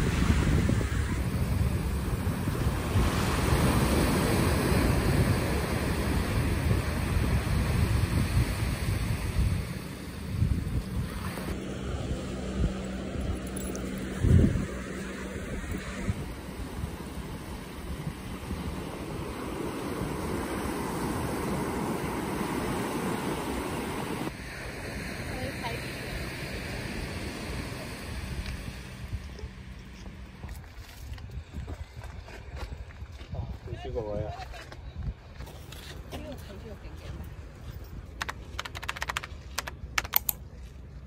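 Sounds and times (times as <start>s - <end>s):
small waves breaking on beach: 0.0s - 13.2s, 13.8s - 29.7s
wind buffeting microphone: 0.0s - 24.4s, 25.2s - 38.2s.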